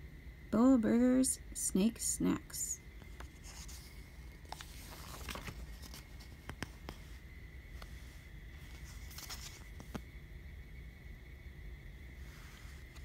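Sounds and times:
faint high hum: 0:00.0 - 0:13.0
book pages turning: 0:03.0 - 0:10.1, 0:12.4 - 0:13.0
paper rustle: 0:03.1 - 0:10.0.

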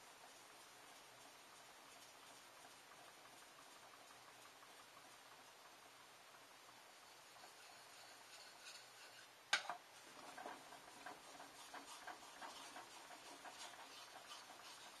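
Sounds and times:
knife scraping on whetstone: 0:07.4 - 0:09.3, 0:10.5 - 0:15.0.

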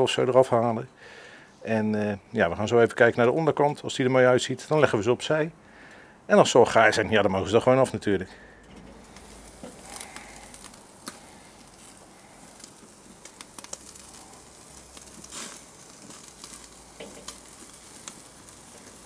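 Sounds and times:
small crackles and pops: 0:08.7 - 0:19.0
steaks sizzling on a grill: 0:08.7 - 0:19.0.

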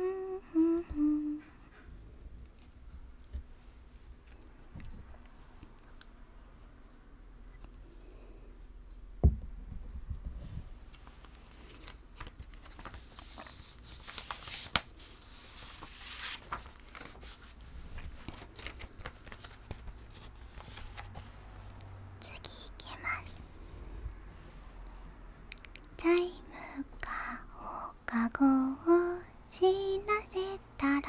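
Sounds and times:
thump: 0:09.2 - 0:10.4.

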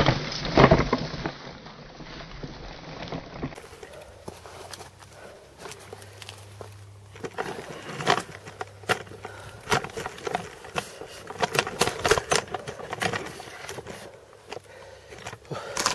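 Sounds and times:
crunching steps on dry ground: 0:03.5 - 0:15.9.

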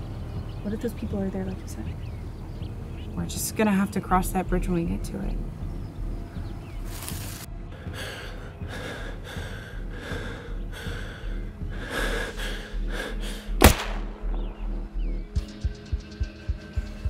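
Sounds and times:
low music drone: 0:00.0 - 0:17.0
heartbeat-like thumping in score: 0:04.0 - 0:06.9, 0:07.5 - 0:17.0
rifle shot: 0:13.6 - 0:14.8.

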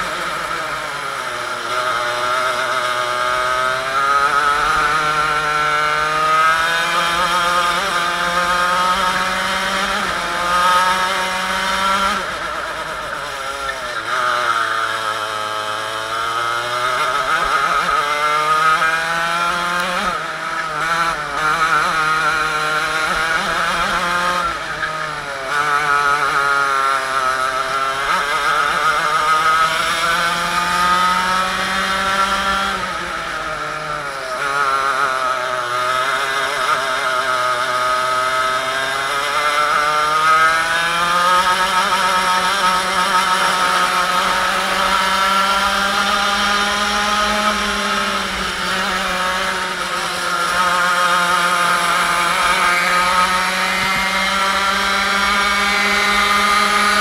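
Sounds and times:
kart engine revving: 0:00.0 - 0:57.0.

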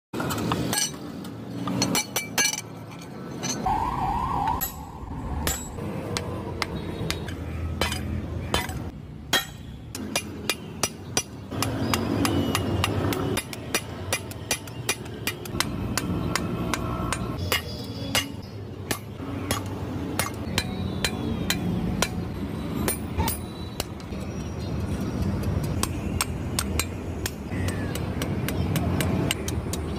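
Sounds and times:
hammer striking steel on anvil: 0:04.6 - 0:23.5.

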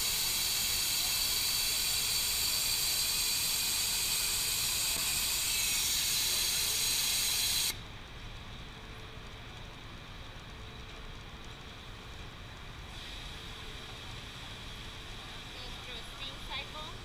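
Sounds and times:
loud steam hiss: 0:00.0 - 0:07.8.

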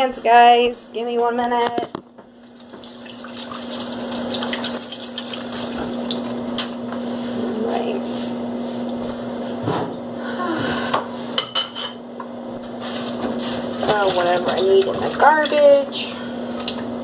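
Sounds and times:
faucet running into sink: 0:02.4 - 0:06.4.

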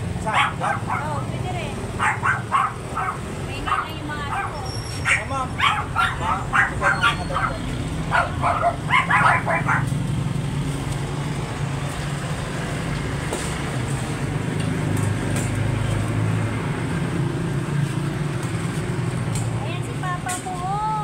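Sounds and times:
street traffic hum: 0:00.0 - 0:21.0
dog barking: 0:00.2 - 0:01.3, 0:02.0 - 0:10.0.

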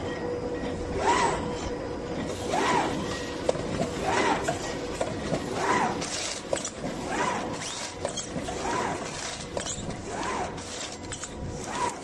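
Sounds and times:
machine clicks and rattles: 0:02.2 - 0:12.0
packaging machine cycling: 0:02.8 - 0:12.0.

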